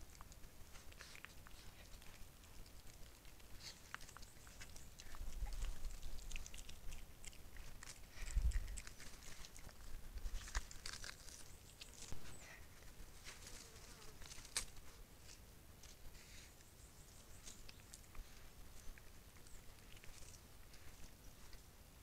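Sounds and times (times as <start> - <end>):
dry leaves crackling and rustling: 8.8 - 15.4.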